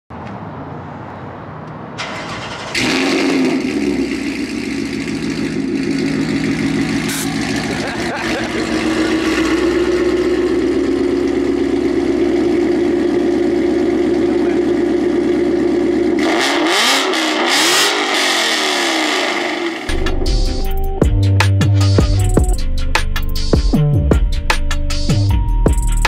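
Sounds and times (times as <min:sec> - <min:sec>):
car engine running and revving: 0:02.7 - 0:21.2.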